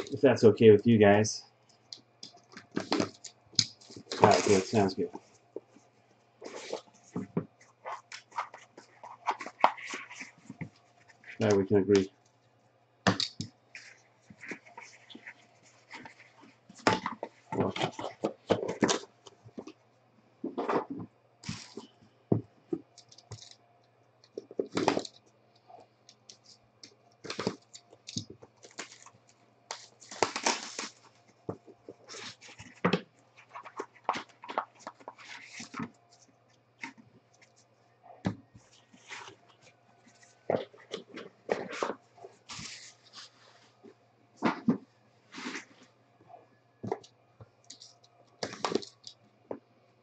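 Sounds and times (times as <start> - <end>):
rustling and tapping of card boxes: 2.2 - 5.8, 6.4 - 12.1, 13.1 - 19.8, 24.3 - 25.2, 26.2 - 37.5, 38.2 - 45.7, 46.8 - 49.6.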